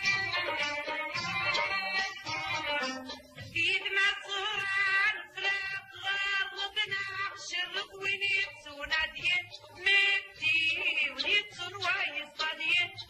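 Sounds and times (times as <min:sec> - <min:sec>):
woman singing high voice: 0:03.5 - 0:13.0.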